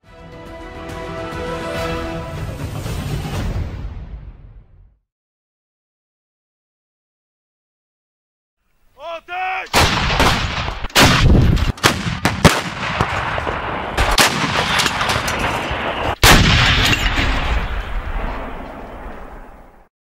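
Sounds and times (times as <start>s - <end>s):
artillery blasts: 9.7s - 19.8s
rolling rumble: 12.9s - 19.8s.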